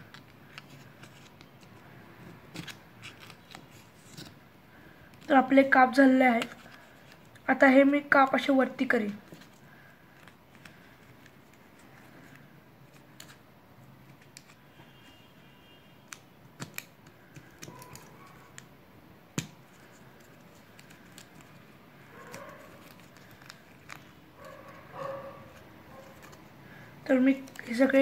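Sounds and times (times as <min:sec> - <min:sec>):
paper crinkling: 0:00.0 - 0:05.4, 0:09.0 - 0:15.2, 0:16.1 - 0:18.8, 0:19.4 - 0:28.0.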